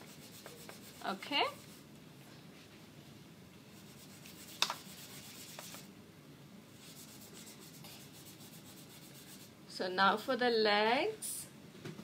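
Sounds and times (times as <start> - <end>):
pastels rubbing on paper: 0.0 - 1.8, 3.8 - 5.9, 6.8 - 9.5.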